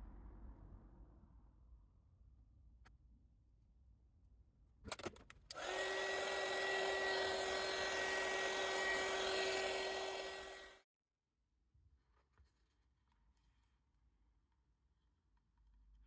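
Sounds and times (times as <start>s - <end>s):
heat gun whooshing and whining: 5.6s - 10.8s.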